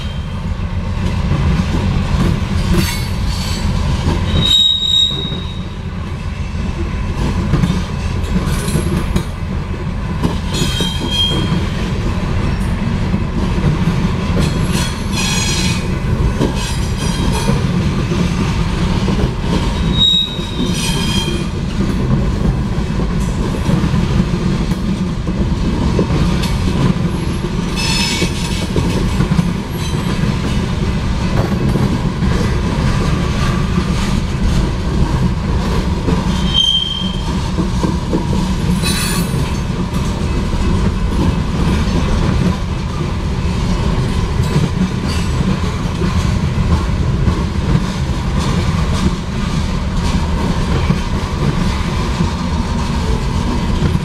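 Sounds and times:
steel wheels rumbling on rail: 0.0 - 54.0
high wheel squeals: 4.3 - 5.8, 10.6 - 11.6, 19.8 - 21.5, 36.4 - 37.3.

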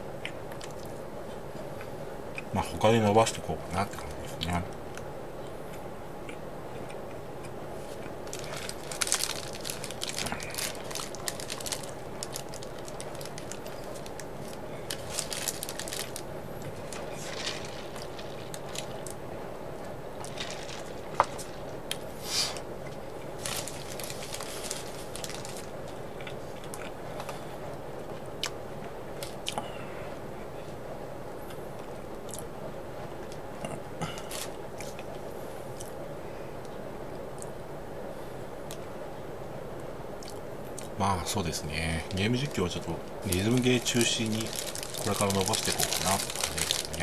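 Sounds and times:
steady low hum: 0.0 - 47.0
crunching and chewing: 3.8 - 19.2, 19.8 - 29.7, 31.4 - 32.5, 33.2 - 36.0, 40.2 - 41.0, 42.0 - 47.0.

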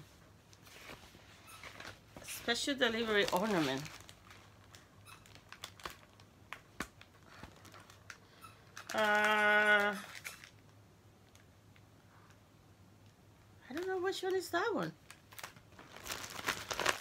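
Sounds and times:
paper pages rustling: 0.5 - 6.2
woman humming: 8.9 - 10.1.

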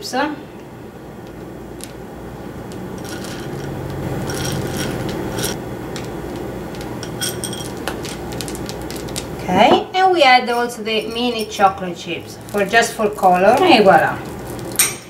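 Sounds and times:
steady low hum: 0.0 - 15.0
chocolate chips clinking on glass: 3.0 - 9.4.

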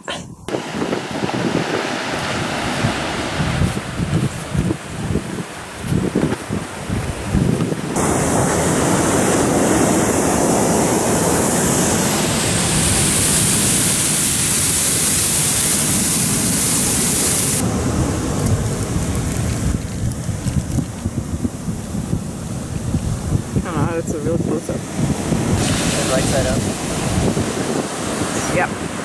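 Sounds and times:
wind buffeting microphone: 0.0 - 29.0
waterfall rushing: 7.8 - 19.4, 25.2 - 29.0.

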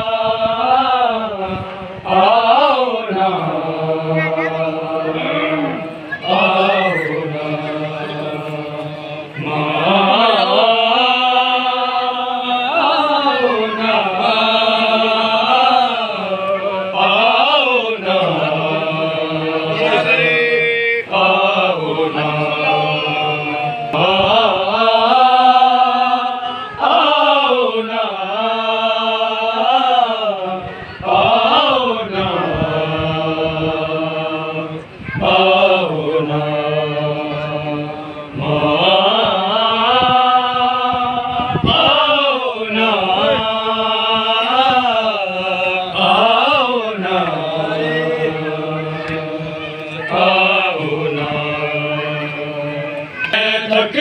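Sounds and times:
person chanting a mourning lament: 0.0 - 54.0.

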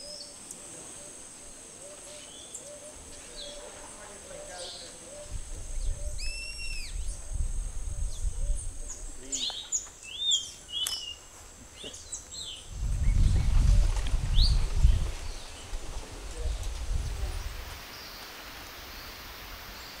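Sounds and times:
birds whistling calls: 0.0 - 1.2, 1.8 - 7.3, 8.0 - 15.7, 17.2 - 20.0
low rumble on microphone: 12.7 - 17.8.

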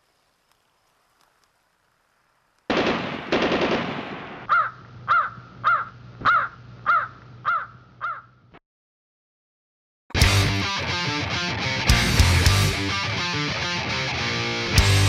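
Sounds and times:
crow cawing: 4.5 - 8.4.

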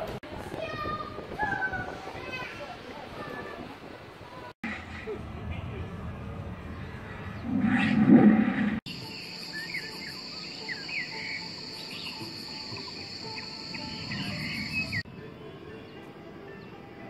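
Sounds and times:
birds chirping: 8.9 - 17.0
insects droning: 8.9 - 17.0.

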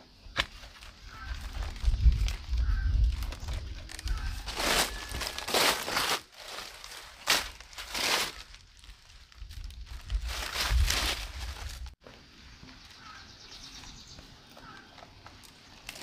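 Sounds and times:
rustling crinkling handling: 0.7 - 12.0.

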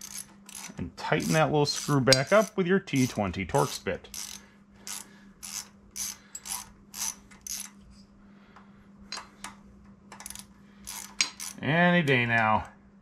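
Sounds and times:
ratcheting driver clicking: 0.0 - 7.8, 10.1 - 11.6.

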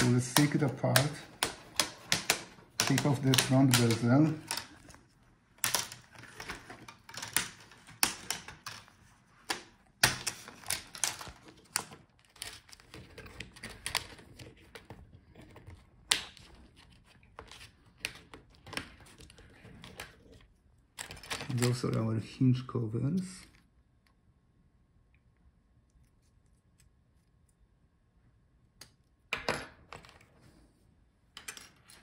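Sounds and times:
plastic clips clicking and snapping: 0.0 - 5.0.

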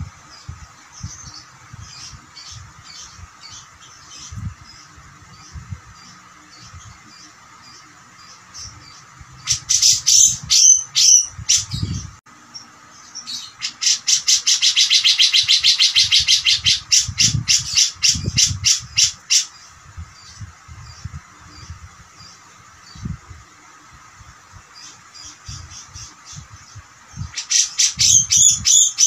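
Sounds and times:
bulbul calling: 13.0 - 19.6, 27.2 - 29.0.

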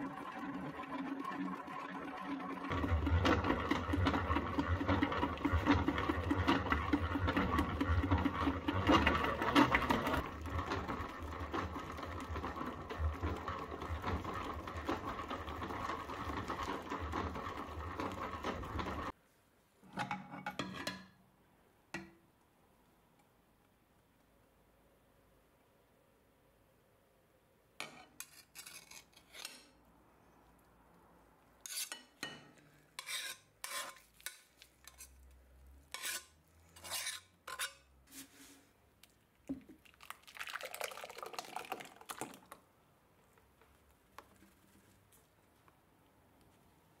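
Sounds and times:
butter churn mechanical rattle: 0.1 - 19.1.

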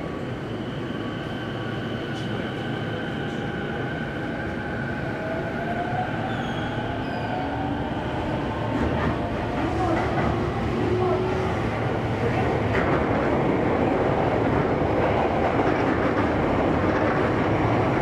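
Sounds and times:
train wheels rumbling on rails: 1.6 - 18.0
clickety-clack of rail joints: 8.7 - 11.2, 12.2 - 18.0.

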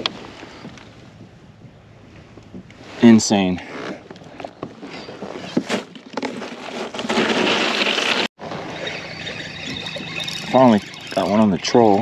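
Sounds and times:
wind: 0.0 - 12.0
water washing: 8.0 - 12.0.

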